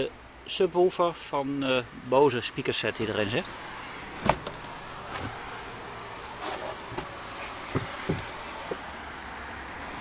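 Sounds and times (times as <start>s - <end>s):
soft bumps and taps: 6.9s - 8.9s.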